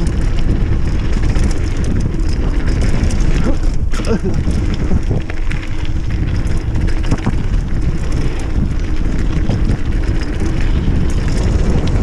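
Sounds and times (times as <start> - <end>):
bike knocks and rattles: 0.0 - 12.0
bike tyre rumble: 0.0 - 12.0
wind buffeting microphone: 0.0 - 12.0.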